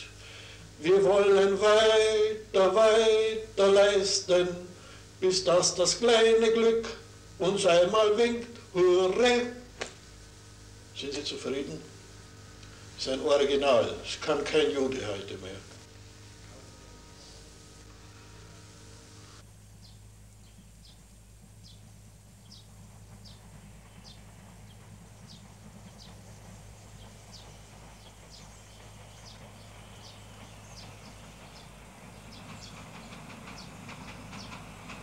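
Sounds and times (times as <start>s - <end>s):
steam train rumble: 0.0s - 35.0s.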